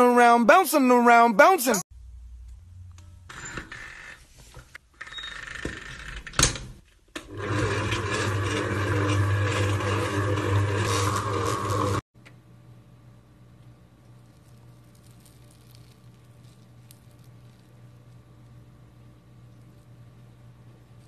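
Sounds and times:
stand mixer motor hum: 0:07.2 - 0:12.0.

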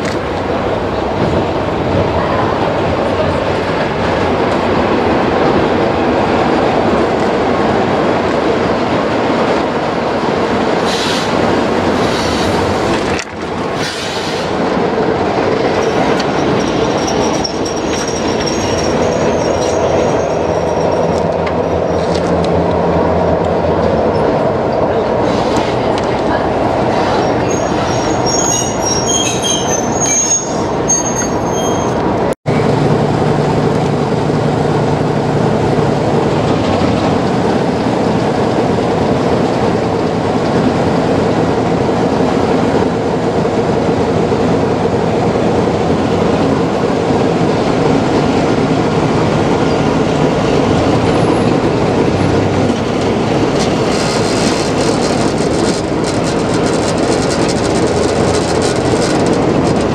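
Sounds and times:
diesel locomotive engine working: 0:00.0 - 0:59.9
high-pitched wheel squeal: 0:15.8 - 0:22.2, 0:27.1 - 0:32.1
wheels running on rails: 0:31.1 - 0:59.9.

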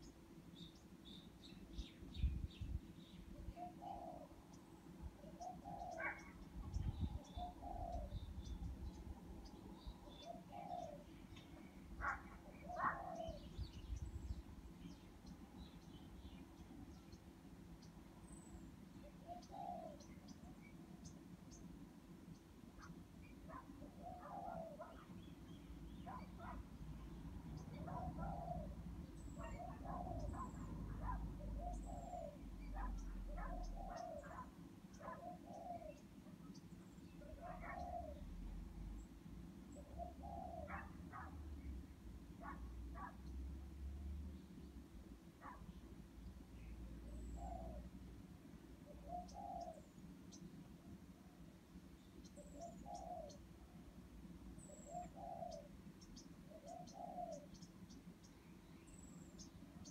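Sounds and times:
bird cooing: 0:03.5 - 0:04.4, 0:05.2 - 0:08.6, 0:09.8 - 0:13.7, 0:19.0 - 0:20.2, 0:23.5 - 0:25.2, 0:27.5 - 0:36.0, 0:37.2 - 0:39.0, 0:39.7 - 0:41.3, 0:47.1 - 0:47.9, 0:48.8 - 0:49.9, 0:52.4 - 0:53.5, 0:54.6 - 0:55.8, 0:56.5 - 0:57.6.

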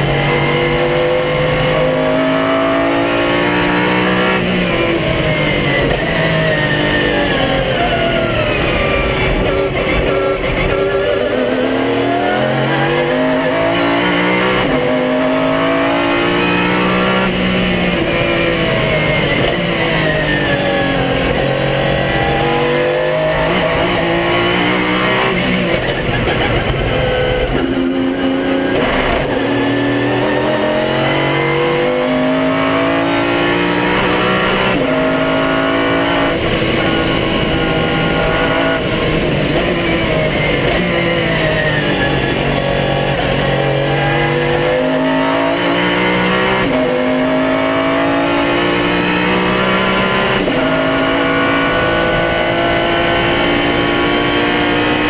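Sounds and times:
car engine revving through gears: 0:00.0 - 0:55.0.

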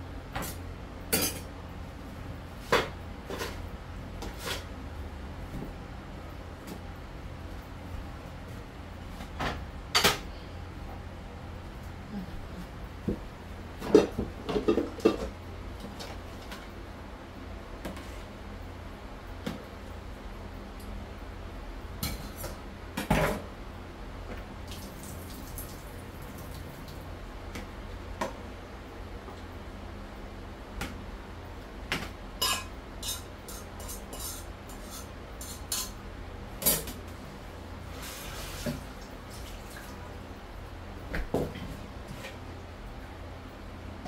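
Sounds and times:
steady low hum: 0:00.0 - 0:44.0
water running: 0:24.6 - 0:27.2, 0:37.9 - 0:40.3
pan clattering against dishes: 0:32.4 - 0:36.0.

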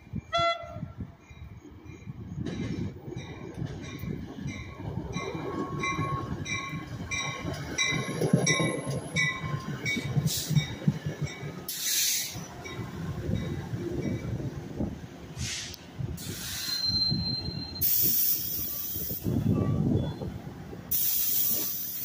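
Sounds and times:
train bell ringing: 0:00.0 - 0:14.5
train wheels rumbling on rails: 0:00.0 - 0:22.0
air hiss: 0:11.7 - 0:12.5, 0:15.3 - 0:16.9, 0:17.8 - 0:19.4, 0:20.9 - 0:22.0.

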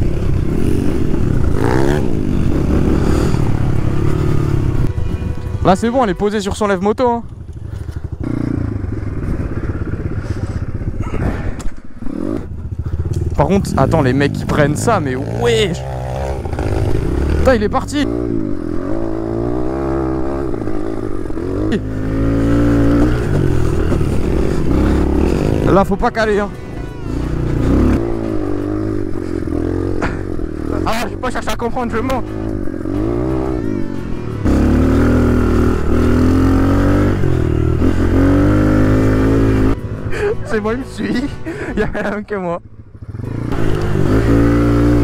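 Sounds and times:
dirt bike engine revving: 0:00.0 - 0:45.0.

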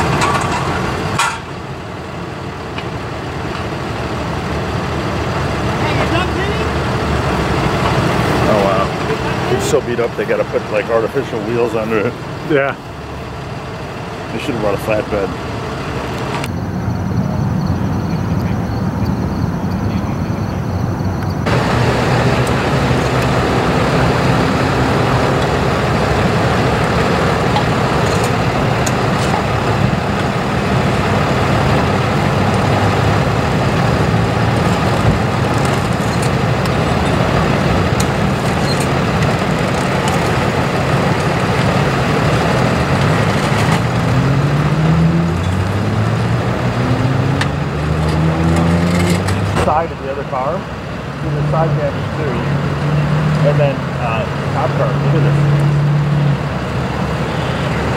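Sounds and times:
road traffic noise: 0:00.0 - 0:57.9
truck engine droning: 0:00.0 - 0:57.9.

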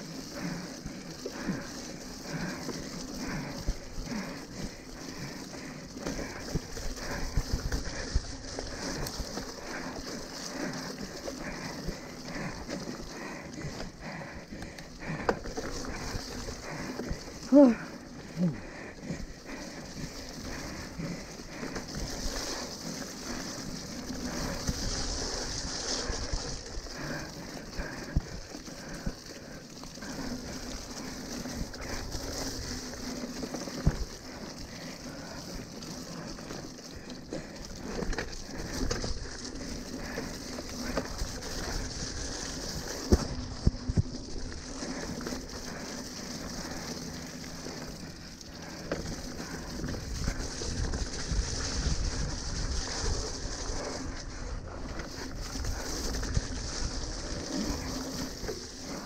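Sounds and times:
bike knocking and rattling: 0:00.0 - 0:59.0
wet tyre hiss and spray: 0:00.0 - 0:59.0.

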